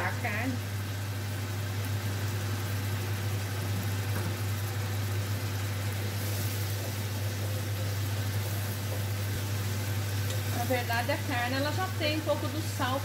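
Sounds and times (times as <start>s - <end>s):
extractor fan humming: 0.0s - 13.0s
meat sizzling in a saucepan: 0.0s - 13.0s
wooden spoon stirring a pan: 6.0s - 13.0s.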